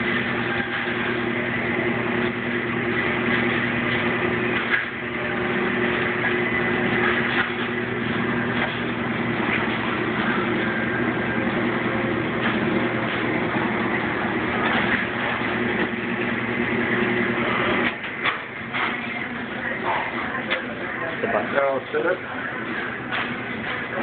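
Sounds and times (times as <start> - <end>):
electric motor hum: 0.0 - 20.4.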